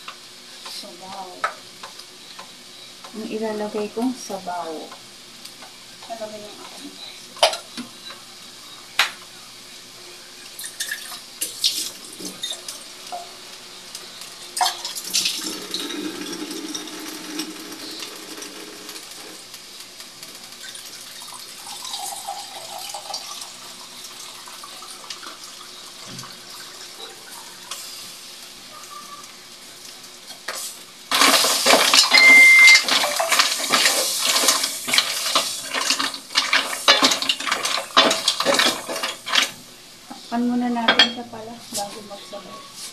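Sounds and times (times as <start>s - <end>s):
mussel shells clattering in pot: 32.8s - 39.6s.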